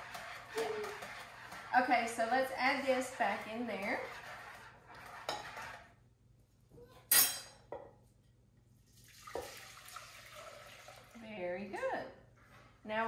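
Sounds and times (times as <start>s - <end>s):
wire whisk scraping in a bowl: 0.0s - 5.9s.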